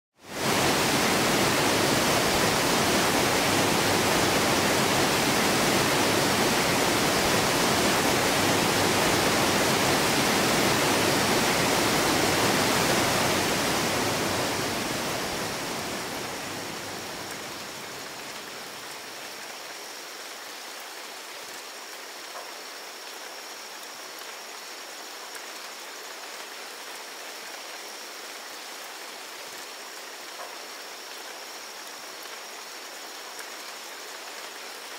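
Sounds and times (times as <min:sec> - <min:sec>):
waterfall rushing: 0:00.2 - 0:18.8
rain hiss: 0:00.2 - 0:34.9.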